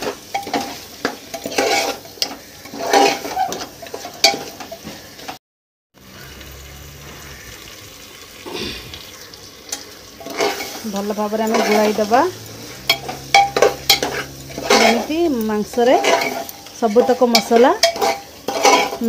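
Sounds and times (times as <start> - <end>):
food sizzling in pot: 0.0 - 5.4, 6.0 - 19.0
metal spoon scraping pot: 0.0 - 5.4, 9.7 - 19.0
spoon clinking against pot: 12.8 - 15.1, 15.7 - 19.0.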